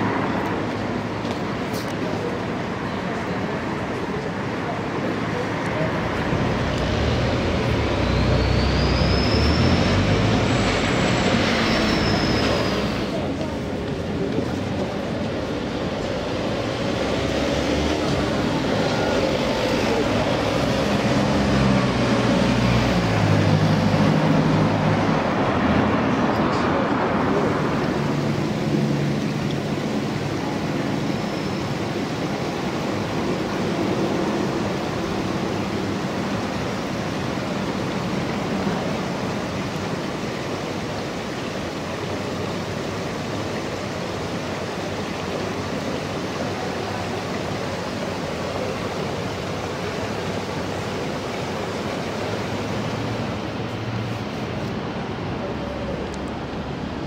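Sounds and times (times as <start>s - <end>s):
water running over stone: 27.2s - 53.2s.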